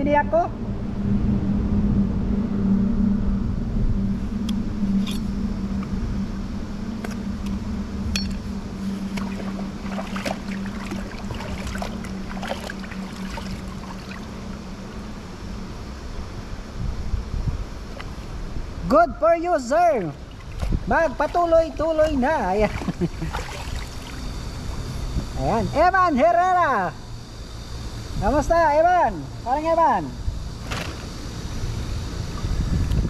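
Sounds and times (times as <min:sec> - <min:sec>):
engine drone: 0:00.0 - 0:33.0.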